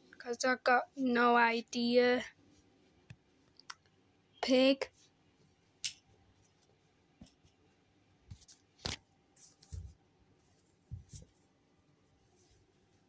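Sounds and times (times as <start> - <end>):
plush toys handled: 8.3 - 13.0.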